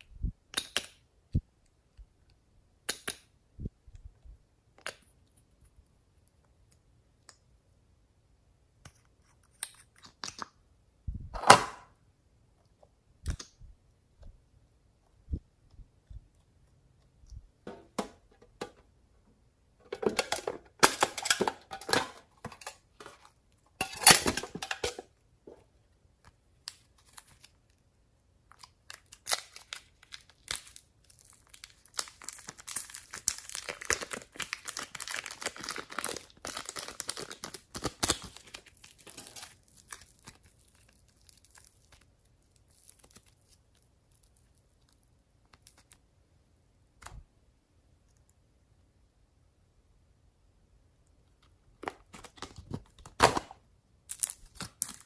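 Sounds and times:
plastic wrap crinkling: 0:28.5 - 0:46.0
slime tearing crackly: 0:28.9 - 0:46.0.

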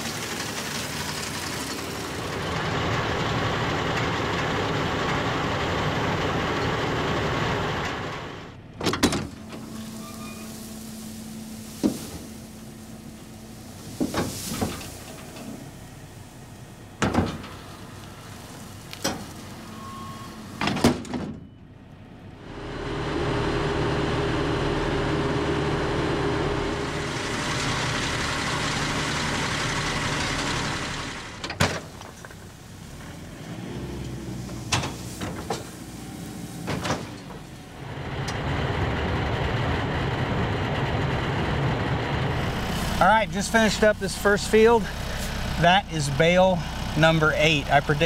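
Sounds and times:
round baler working: 0:00.0 - 0:21.0, 0:21.6 - 0:48.0
tractor engine running: 0:00.0 - 0:48.0.

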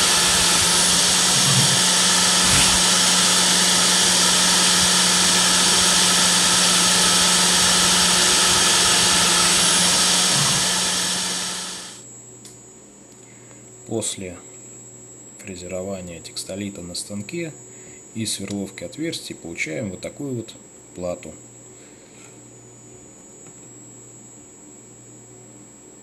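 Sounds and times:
engraving bit cutting hiss: 0:00.0 - 0:12.0
milling spindle high whine: 0:00.0 - 0:12.0.

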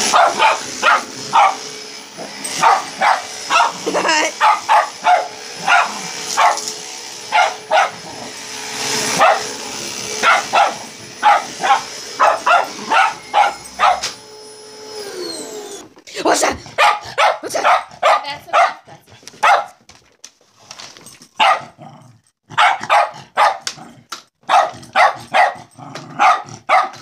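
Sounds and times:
vacuum cleaner motor whine: 0:00.0 - 0:16.0
dog barking: 0:00.1 - 0:01.7, 0:02.6 - 0:06.7, 0:07.3 - 0:08.1, 0:09.2 - 0:09.5, 0:10.2 - 0:14.2, 0:16.7 - 0:19.8, 0:21.4 - 0:21.8, 0:22.5 - 0:23.7, 0:24.4 - 0:27.0.

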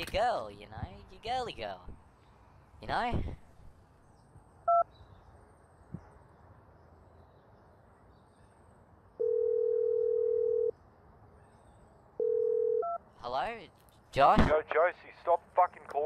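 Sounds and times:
phone ringing tone: 0:09.2 - 0:10.7, 0:12.2 - 0:13.0.

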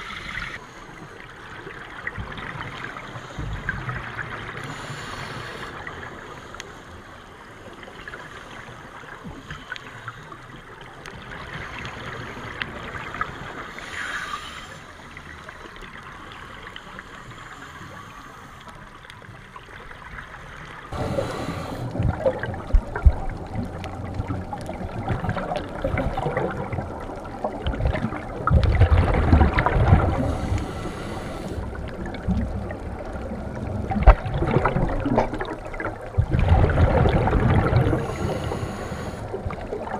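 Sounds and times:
gurgling underwater bubbles: 0:20.9 - 0:39.9
diver exhaling through regulator: 0:21.0 - 0:22.4.

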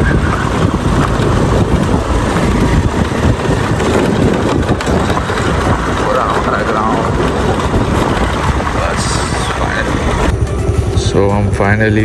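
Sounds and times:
wind on microphone: 0:00.0 - 0:11.1
scooter engine running: 0:00.0 - 0:12.0
tyres rumbling on gravel: 0:00.0 - 0:12.0.

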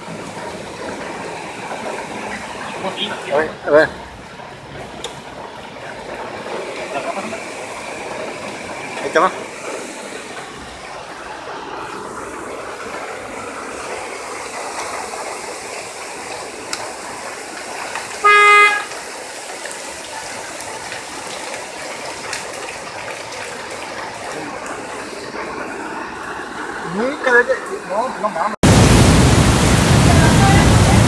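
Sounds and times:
heavy rain: 0:00.0 - 0:31.0
running water: 0:00.0 - 0:31.0
car horn blast: 0:18.2 - 0:19.0.

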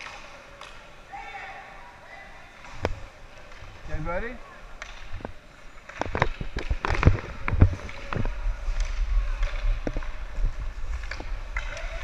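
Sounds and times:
hockey sticks and puck clacking: 0:00.0 - 0:01.0, 0:02.5 - 0:12.0
low microphone rumble: 0:06.4 - 0:12.0.

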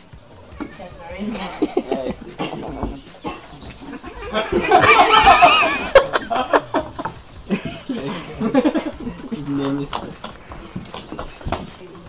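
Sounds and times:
person laughing: 0:01.2 - 0:02.9, 0:03.8 - 0:09.6.

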